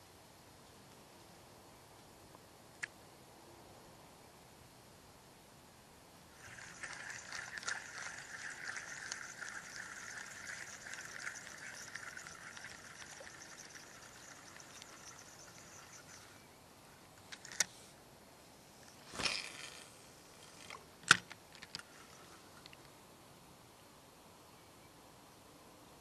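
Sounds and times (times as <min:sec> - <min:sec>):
fishing reel whirring: 0:06.4 - 0:16.4.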